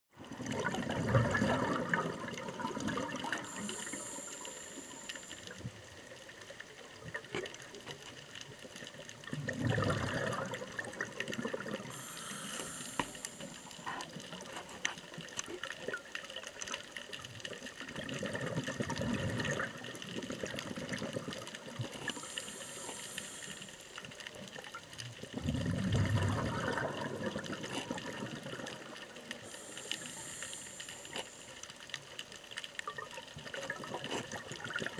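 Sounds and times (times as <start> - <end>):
faint underwater crackle: 0.1 - 34.9
exhaled bubbles rushing: 0.2 - 5.2, 9.2 - 14.4, 17.8 - 23.4, 25.2 - 30.8
scuba regulator breathing hiss: 3.3 - 6.4, 11.8 - 14.4, 21.9 - 24.4, 29.3 - 31.9.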